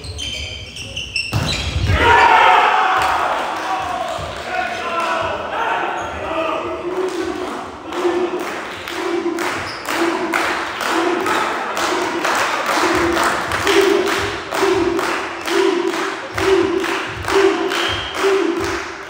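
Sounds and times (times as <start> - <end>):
rhythmic beating and clapping: 6.8 - 19.0.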